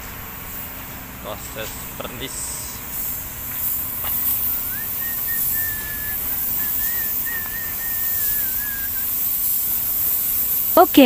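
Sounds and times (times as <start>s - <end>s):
spray gun hissing: 0.4s - 11.0s
thin high whistle: 3.0s - 11.0s.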